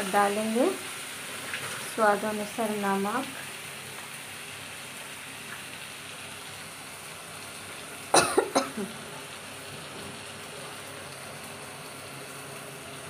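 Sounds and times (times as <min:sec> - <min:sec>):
masala sizzling: 0:00.0 - 0:13.0
person coughing: 0:08.2 - 0:09.0.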